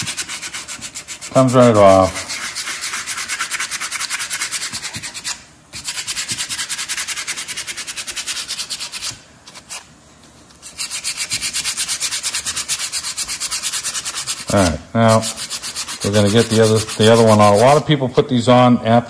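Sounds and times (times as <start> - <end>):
sandpaper rubbing brake pad: 0.0 - 9.9, 10.6 - 17.8.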